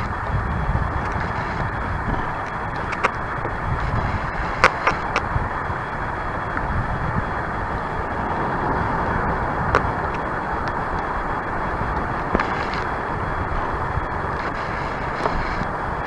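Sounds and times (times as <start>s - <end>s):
wind rushing: 0.0s - 16.0s.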